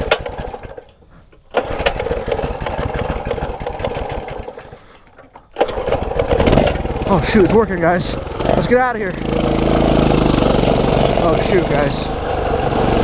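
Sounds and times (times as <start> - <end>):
small engine starting and dying: 0.0 - 13.0.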